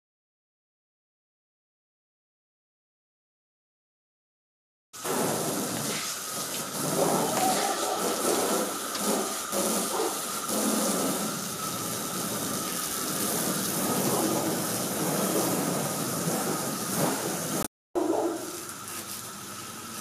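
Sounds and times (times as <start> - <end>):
hose water spraying on car: 5.0 - 20.0.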